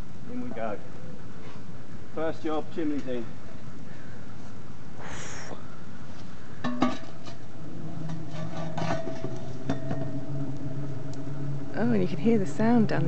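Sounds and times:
gas flares burning: 0.0s - 13.0s
chimney low humming tone: 5.8s - 13.0s
metal chimney pipe clanking: 6.6s - 13.0s.

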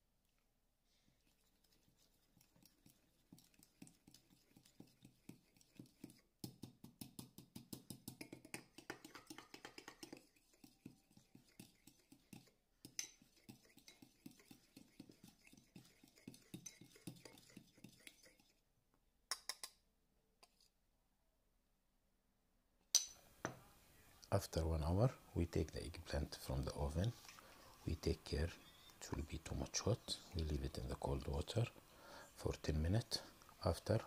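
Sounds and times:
spoon whisking in glass bowl: 1.2s - 18.6s.

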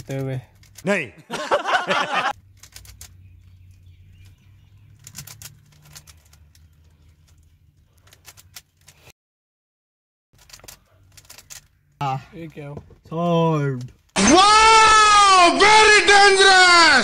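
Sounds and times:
puzzle cube layers clicking: 2.4s - 3.2s, 4.2s - 6.7s, 10.4s - 11.7s.

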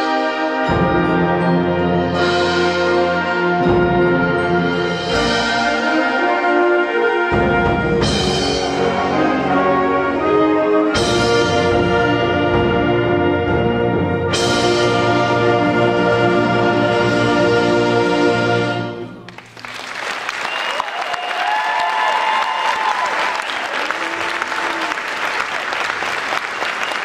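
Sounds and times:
symphonic band playing chords: 0.0s - 19.6s.

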